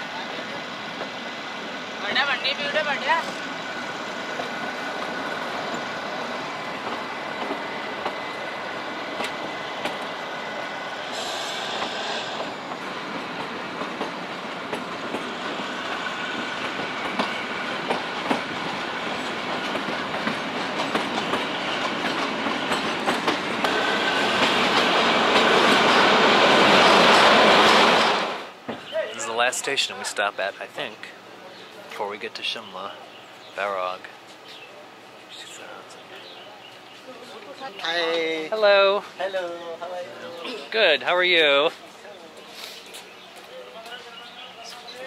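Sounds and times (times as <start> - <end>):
train rumble: 0.0 - 39.4
wheels clicking over rail joints: 16.3 - 23.8.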